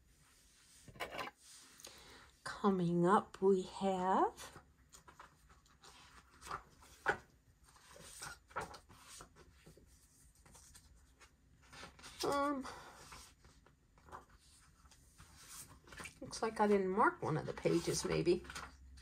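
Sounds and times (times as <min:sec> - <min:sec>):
book pages rustling: 0:04.5 - 0:19.0.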